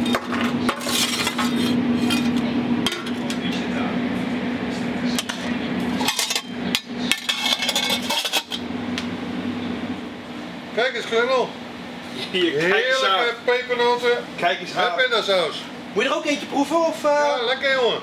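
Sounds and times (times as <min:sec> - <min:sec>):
steady hum: 0:00.0 - 0:18.0
metal scoop scraping in a tray: 0:00.8 - 0:02.4, 0:07.1 - 0:08.6
metal lids and spoon knocking: 0:06.0 - 0:08.6.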